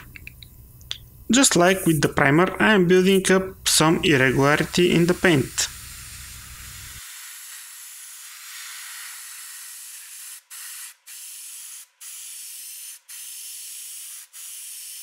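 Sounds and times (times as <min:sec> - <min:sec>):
airbrush hissing: 0:03.6 - 0:15.0.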